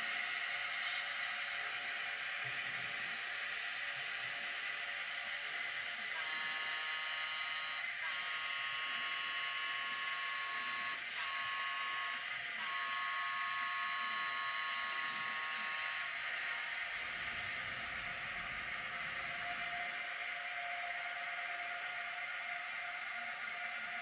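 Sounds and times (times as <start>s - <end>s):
toy train horn blasts: 6.2s - 16.0s.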